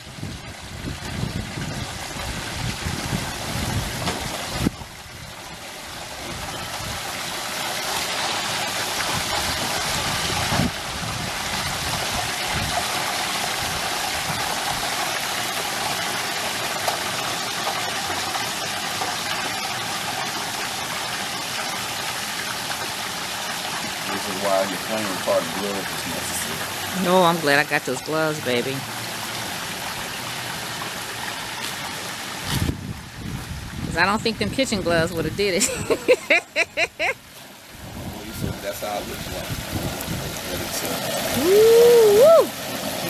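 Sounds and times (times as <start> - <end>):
hot oil bubbling and sizzling: 0.0 - 43.0.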